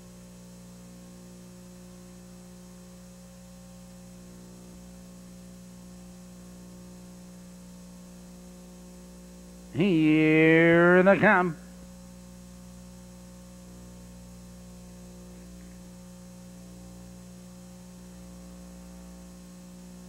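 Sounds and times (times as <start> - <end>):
electrical mains hum: 0.0 - 20.0.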